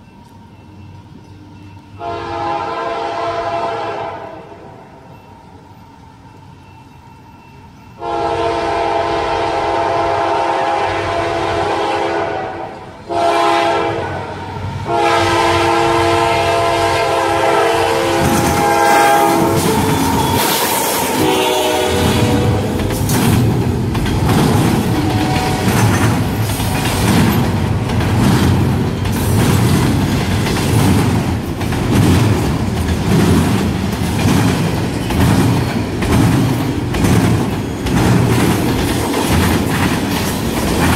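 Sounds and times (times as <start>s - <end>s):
freight train rumbling by: 0.0s - 40.9s
locomotive air horn blasts: 2.0s - 4.7s, 8.0s - 22.8s, 25.0s - 25.7s
wheels clicking over rail joints: 18.0s - 40.9s.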